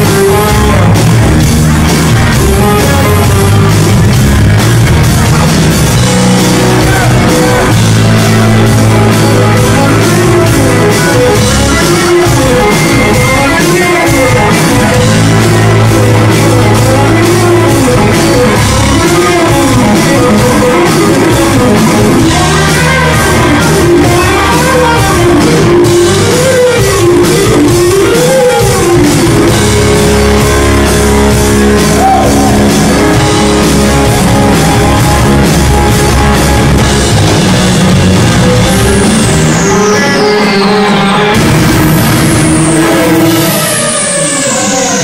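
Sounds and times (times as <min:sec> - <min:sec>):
live rock band playing: 0:00.0 - 0:45.0
high tone sweeping downward: 0:01.9 - 0:45.0.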